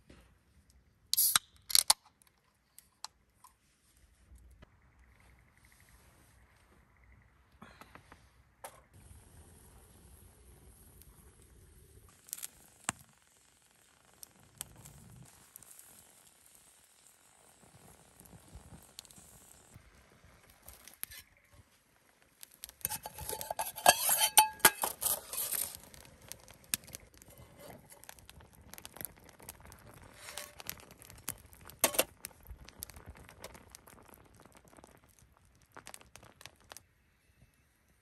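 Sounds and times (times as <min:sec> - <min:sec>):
metal cookware clinking and scraping: 0:22.8 - 0:25.8.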